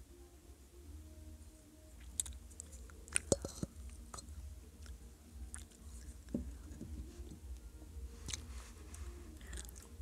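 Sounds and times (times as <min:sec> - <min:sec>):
clay pot being chewed: 0:02.0 - 0:07.4, 0:08.2 - 0:08.5, 0:09.4 - 0:10.0.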